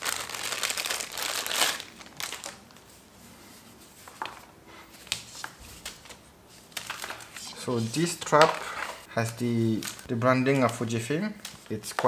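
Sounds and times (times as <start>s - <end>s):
plastic bag crinkling: 0.0s - 2.8s, 6.7s - 12.0s.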